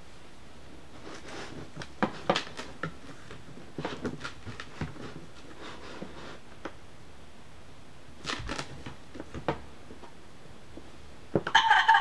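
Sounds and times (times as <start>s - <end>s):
book knocks taps and rustles: 8.2s - 9.7s.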